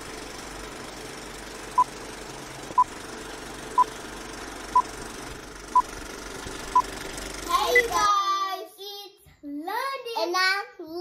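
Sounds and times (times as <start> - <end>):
steady running noise: 0.0 - 7.9.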